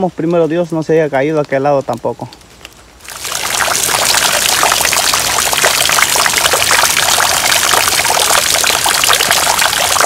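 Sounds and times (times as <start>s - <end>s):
water rushing over ground: 2.9s - 10.0s.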